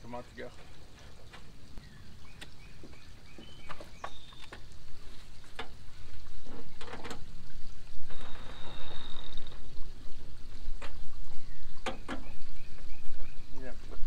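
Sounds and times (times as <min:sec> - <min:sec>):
clicks and knocks of engine parts: 0:05.4 - 0:05.8, 0:06.5 - 0:07.4.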